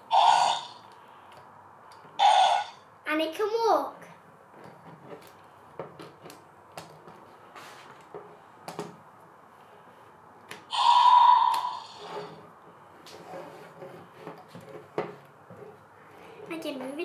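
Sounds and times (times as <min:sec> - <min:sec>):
toy dinosaur roar: 0:00.1 - 0:00.9, 0:02.2 - 0:02.8, 0:10.7 - 0:12.3.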